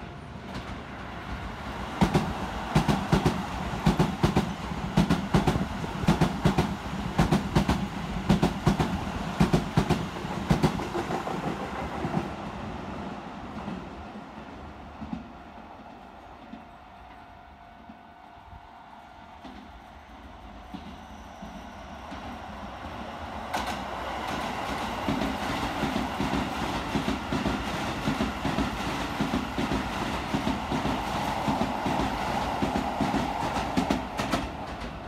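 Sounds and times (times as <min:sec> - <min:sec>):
train wheels clacking over rails: 0:01.8 - 0:12.4, 0:19.4 - 0:35.0.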